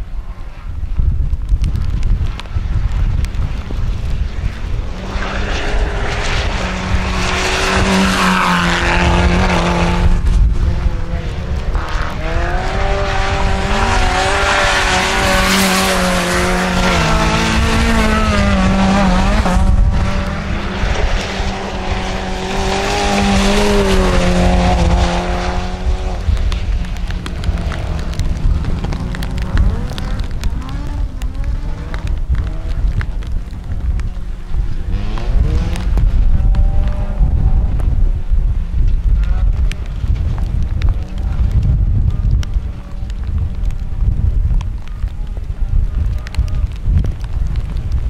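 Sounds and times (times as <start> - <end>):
car engines revving hard: 4.6 - 38.1.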